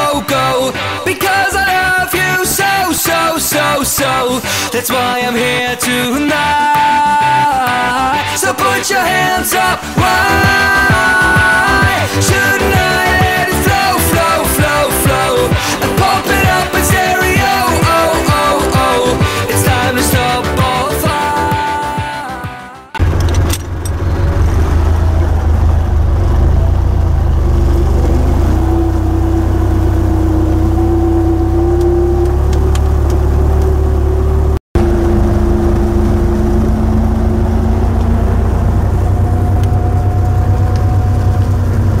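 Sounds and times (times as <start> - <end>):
tractor diesel engine running: 8.3 - 21.5, 23.0 - 42.0.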